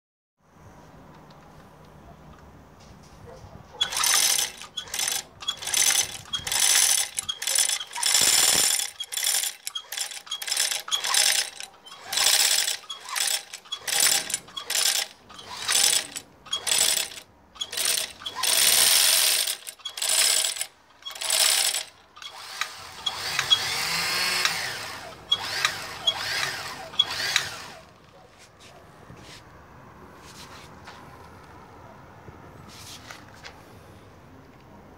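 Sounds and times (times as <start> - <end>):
sewing machine running: 3.8 - 27.9.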